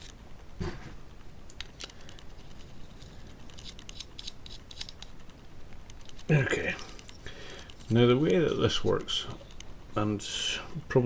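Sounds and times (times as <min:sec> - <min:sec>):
small parts clicking: 0:01.5 - 0:09.7.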